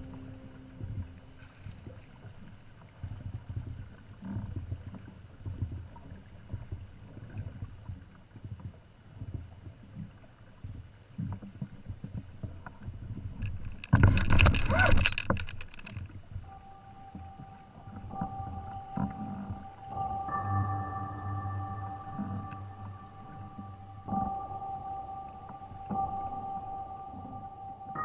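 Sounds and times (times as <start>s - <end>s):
water rumbling against hulls: 0.0s - 28.0s.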